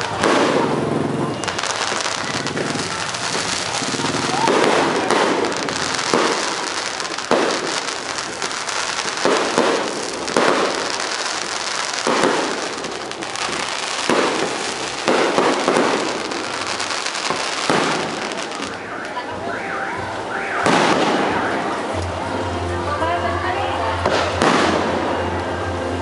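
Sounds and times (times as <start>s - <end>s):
dense firework crackling: 0.0s - 22.4s, 24.0s - 25.6s
firework shells bursting: 1.4s - 18.8s.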